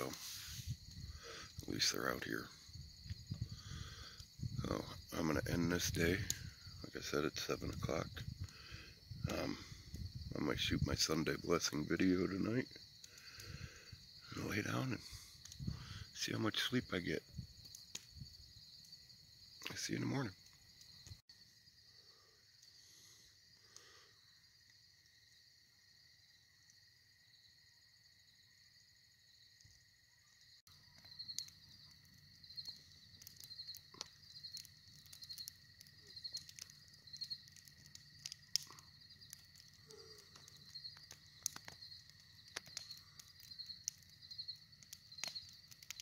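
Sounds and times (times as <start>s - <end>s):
pulsing insect call: 0.0s - 46.0s
light clicks and ticks: 30.9s - 44.1s, 44.8s - 46.0s.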